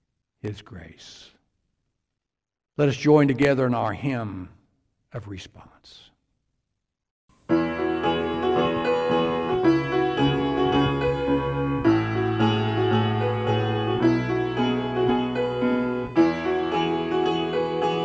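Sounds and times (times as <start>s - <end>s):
keyboard hymn chords: 7.4s - 18.0s.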